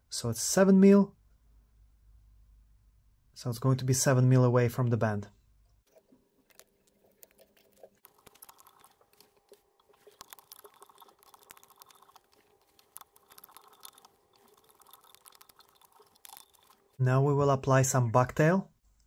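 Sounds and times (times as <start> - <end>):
thread wrapping clicking and ticking: 5.7 - 17.0.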